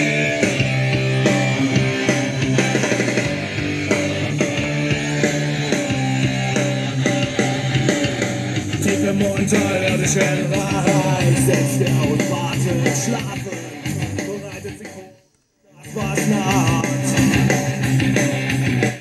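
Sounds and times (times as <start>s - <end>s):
rock music with guitar: 0.0s - 15.1s, 15.8s - 19.0s.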